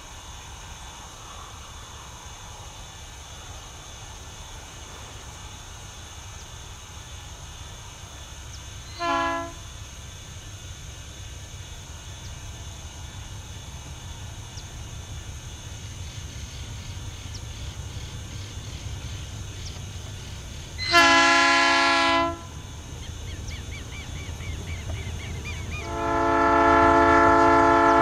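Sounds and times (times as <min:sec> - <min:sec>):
diesel locomotive engine rumble: 0:00.0 - 0:28.0
locomotive horn blast: 0:08.9 - 0:09.7, 0:20.8 - 0:22.6, 0:25.8 - 0:28.0.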